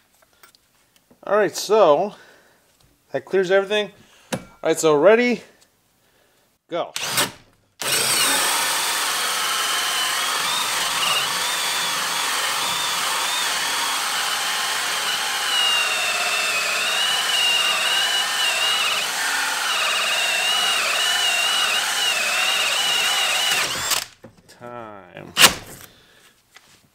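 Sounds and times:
cordless drill cutting through wood: 7.0s - 24.2s.

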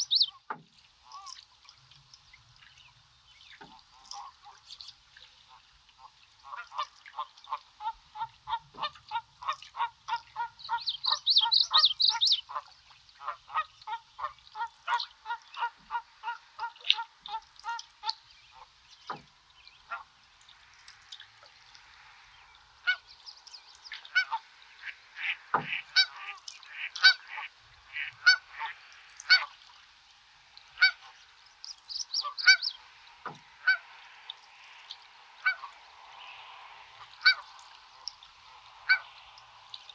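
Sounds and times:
geese honking: 6.5s - 18.7s, 24.0s - 29.5s, 30.8s - 31.2s, 31.9s - 32.8s, 33.6s - 34.0s, 35.4s - 35.8s, 37.0s - 37.5s, 38.8s - 39.1s.

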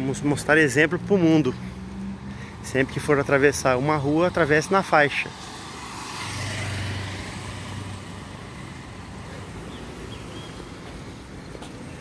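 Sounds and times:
street traffic noise: 0.0s - 12.0s
motorcycle passing by: 4.4s - 10.8s.

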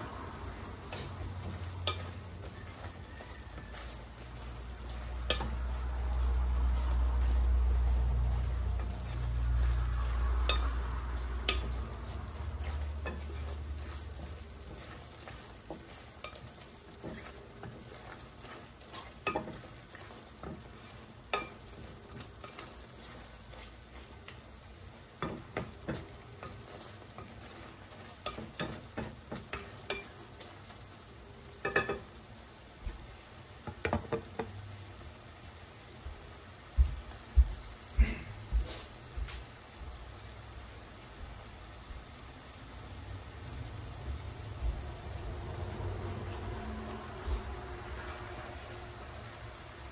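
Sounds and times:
faint sizzle: 0.0s - 49.9s
wooden spoon knocking and scraping pan: 0.6s - 30.6s, 33.6s - 34.6s.

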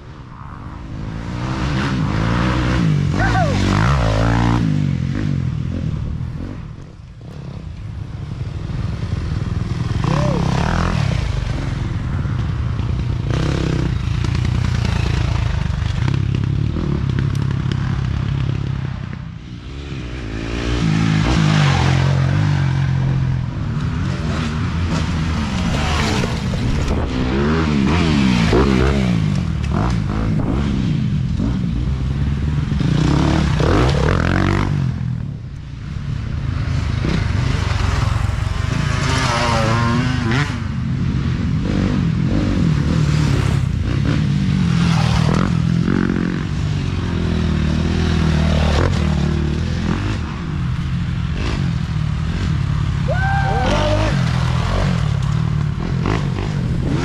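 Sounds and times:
dirt bike engines passing by: 0.0s - 57.0s.

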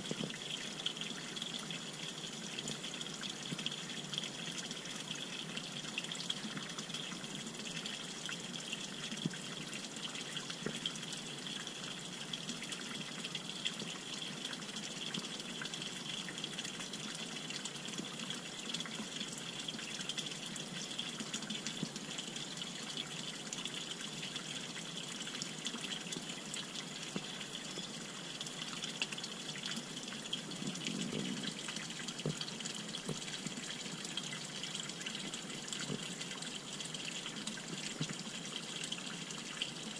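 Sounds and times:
water pouring into a pond: 0.0s - 39.9s.

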